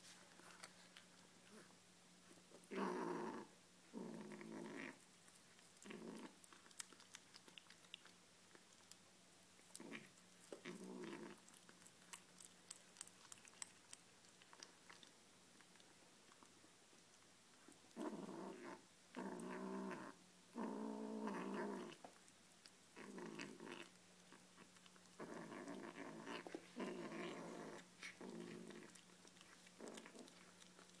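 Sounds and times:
kitten growling: 2.7s - 5.0s, 5.6s - 8.1s, 9.7s - 15.1s, 17.9s - 22.1s, 23.0s - 31.0s.

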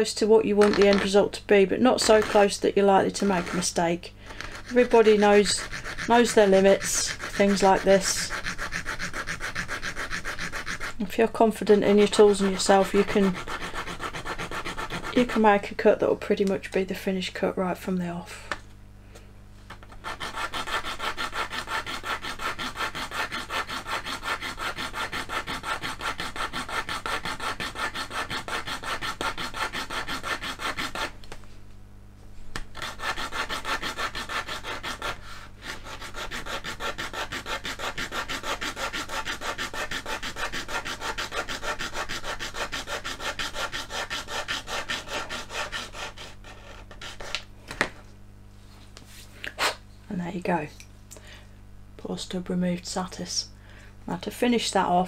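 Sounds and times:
hobby saw cutting resin: 1.8s - 15.7s, 20.0s - 31.1s, 32.8s - 47.3s.

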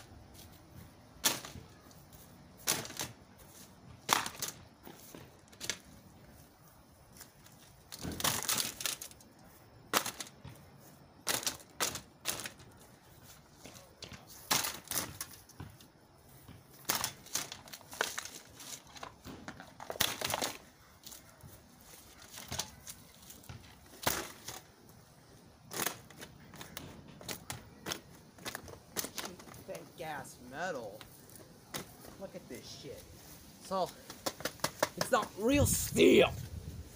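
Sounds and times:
plastic fan cracking and crunching: 1.2s - 3.3s, 3.9s - 6.1s, 7.1s - 13.0s, 13.6s - 15.6s, 16.7s - 21.2s, 21.9s - 24.9s, 25.6s - 29.9s, 33.9s - 35.6s.

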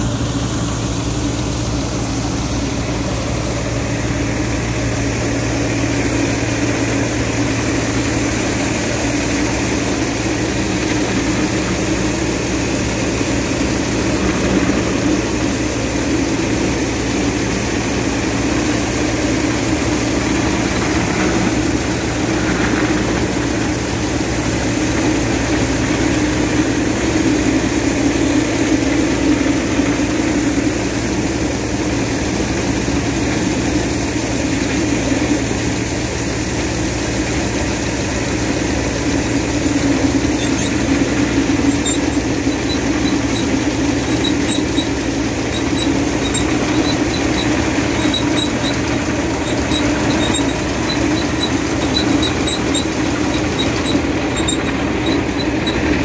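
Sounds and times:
auger discharging grain: 0.0s - 56.0s
tractor engine running: 0.0s - 56.0s.

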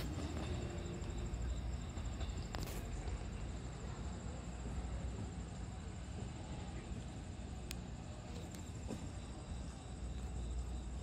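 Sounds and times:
insects trilling: 0.0s - 4.9s, 7.9s - 11.0s.

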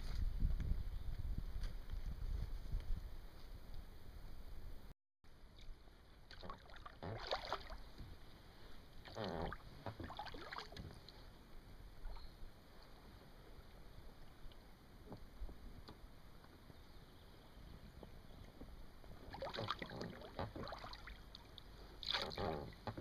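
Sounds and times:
water lapping: 5.6s - 15.8s, 17.9s - 23.0s
paddle splashing in water: 6.1s - 11.4s, 18.0s - 23.0s.

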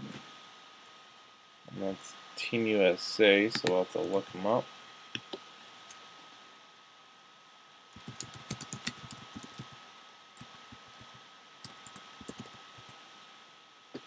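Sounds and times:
typing on computer keyboard: 8.0s - 9.7s, 10.4s - 12.9s.

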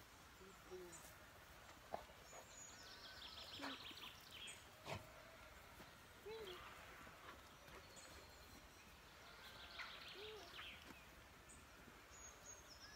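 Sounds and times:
small bird singing: 2.1s - 4.7s, 6.2s - 12.9s.

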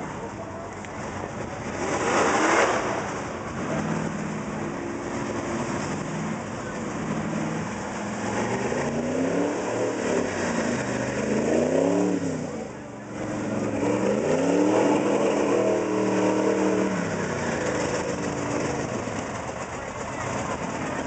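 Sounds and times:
truck engine revving hard: 0.0s - 21.0s.

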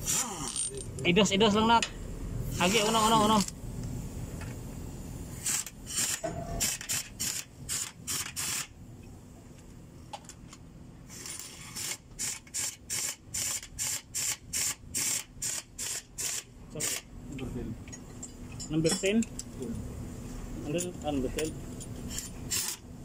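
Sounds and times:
hand ratchet clicking: 5.4s - 8.7s.

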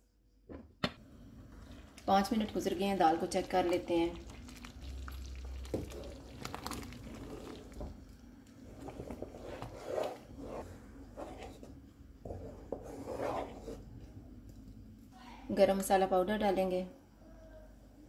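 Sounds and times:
wooden spatula stirring thick stew: 5.2s - 8.0s, 8.6s - 13.9s.

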